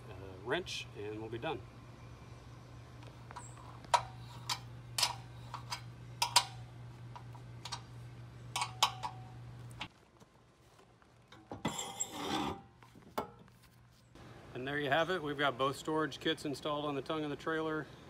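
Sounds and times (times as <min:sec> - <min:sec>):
low steady hum: 0:00.0 - 0:18.0
scraping rub: 0:11.7 - 0:14.2.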